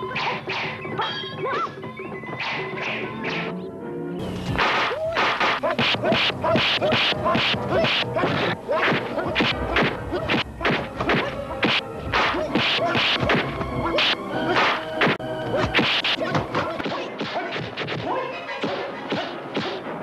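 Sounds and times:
background music: 0:00.0 - 0:20.0
punch and block whacks: 0:04.6 - 0:19.9.

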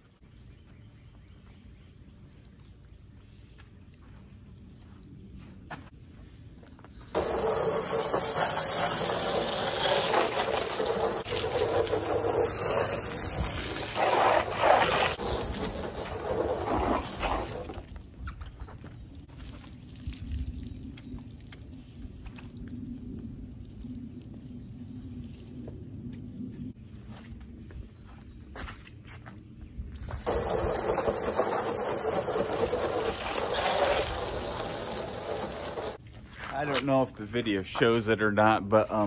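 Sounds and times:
hose spraying water on window: 0:07.0 - 0:17.9, 0:30.1 - 0:36.0.

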